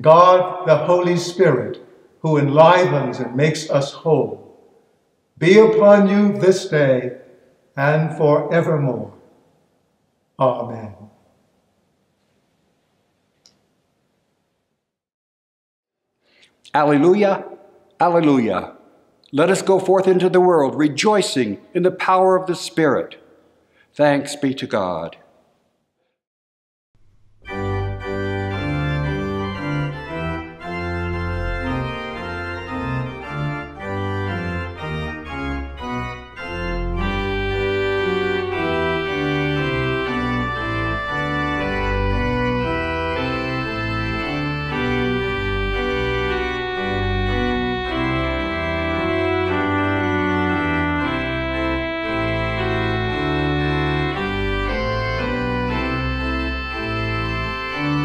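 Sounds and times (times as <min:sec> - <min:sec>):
church organ chords: 0:00.0 - 0:04.4, 0:05.4 - 0:09.2, 0:27.3 - 0:58.0.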